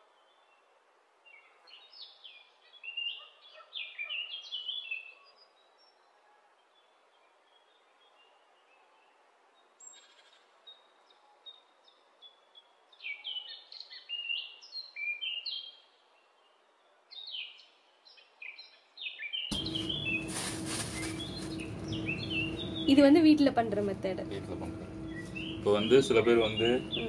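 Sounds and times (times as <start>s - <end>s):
birds chirping: 1.3s - 6.1s, 11.8s - 27.0s
loud steady noise with low hum: 19.5s - 27.0s.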